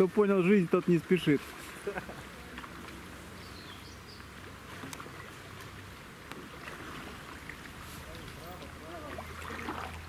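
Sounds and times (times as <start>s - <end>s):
low steady water noise: 0.0s - 10.0s
paddle drips and knocks: 1.0s - 3.2s, 4.2s - 10.0s.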